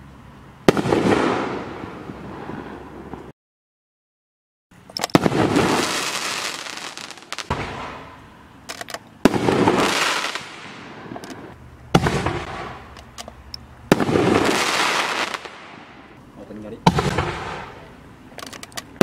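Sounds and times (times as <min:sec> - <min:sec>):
firework crackling: 0:00.6 - 0:03.3, 0:05.1 - 0:08.3, 0:09.2 - 0:13.0, 0:13.9 - 0:16.2, 0:16.9 - 0:17.8.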